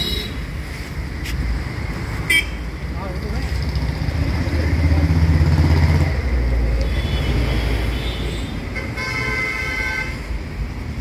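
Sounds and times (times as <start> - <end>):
vehicle engine passing: 3.2 - 6.6
vehicle horn: 6.8 - 10.2.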